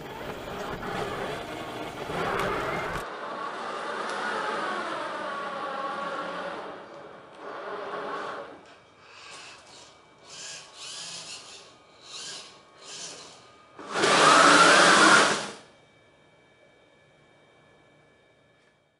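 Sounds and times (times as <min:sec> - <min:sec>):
small electric motors whirring: 0:03.9 - 0:15.6.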